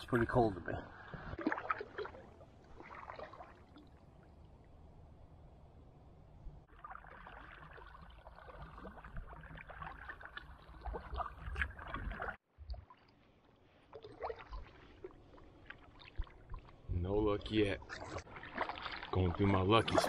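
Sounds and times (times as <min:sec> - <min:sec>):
paddle splashing and dripping: 0:00.9 - 0:04.5, 0:06.7 - 0:16.9, 0:17.8 - 0:20.0.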